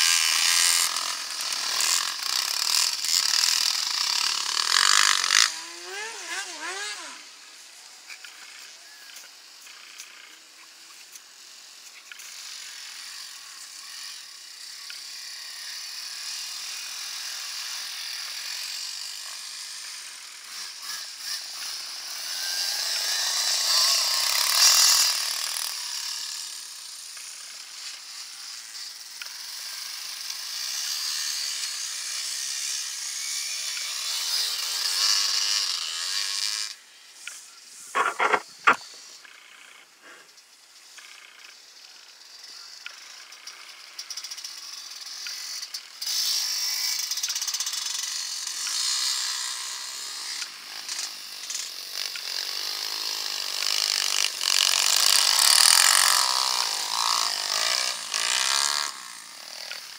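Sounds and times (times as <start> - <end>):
second bike engine revving: 37.9 - 39.2
dirt bike engine revving: 38.0 - 39.1.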